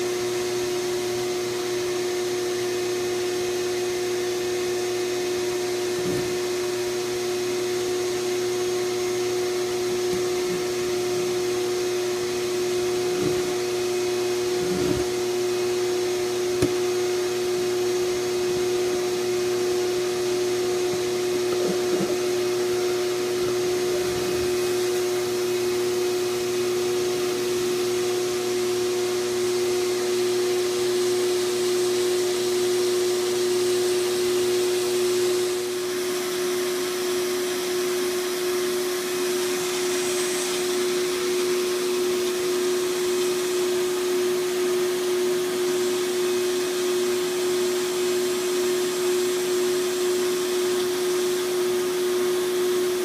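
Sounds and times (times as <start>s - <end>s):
duct cleaning machine motor hum: 0.0s - 53.0s
brush and hose knocking duct: 5.5s - 7.1s, 9.1s - 25.8s.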